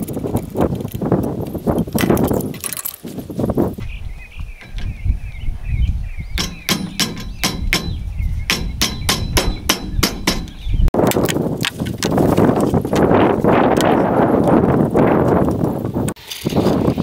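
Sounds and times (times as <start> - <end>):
hammer tapping on metal: 6.4 - 10.7.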